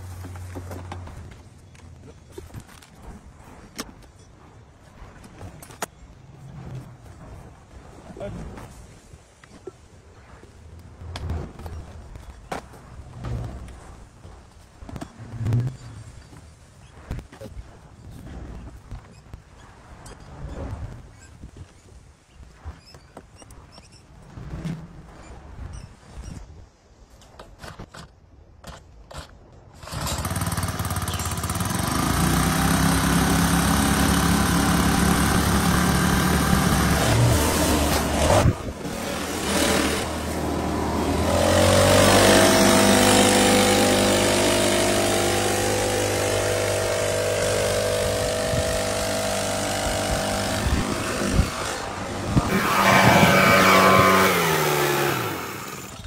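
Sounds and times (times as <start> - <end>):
leaf blower engine revving: 29.8 - 56.0
air rushing from blower tube: 32.2 - 56.0.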